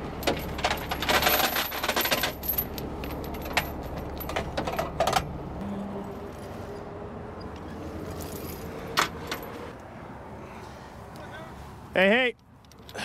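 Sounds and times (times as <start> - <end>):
steel chains clinking and jangling: 0.2 - 5.2, 7.8 - 9.7.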